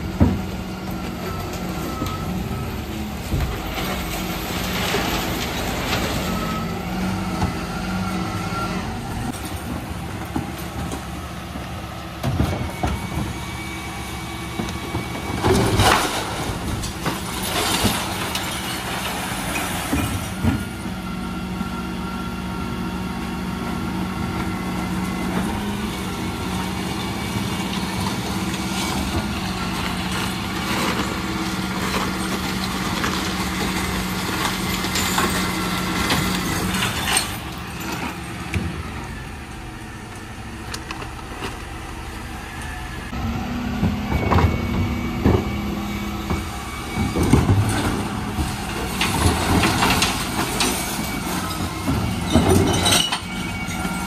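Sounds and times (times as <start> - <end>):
truck engine running: 0.0 - 54.0
bangs and clatter of bin: 14.5 - 20.9, 43.8 - 54.0.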